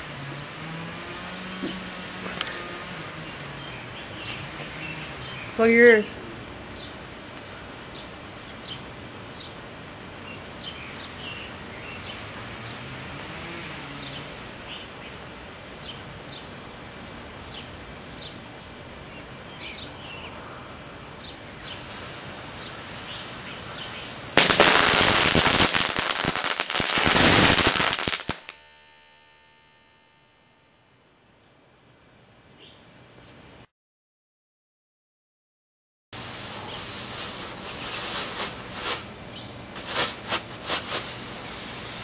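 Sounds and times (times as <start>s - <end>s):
birds chirping faintly: 1.1s - 13.0s, 36.6s - 40.1s
sparklers fizzing: 21.8s - 29.5s, 36.2s - 39.0s, 39.8s - 42.0s
firecracker pops crackling: 23.8s - 28.7s, 37.0s - 39.0s, 39.8s - 41.2s.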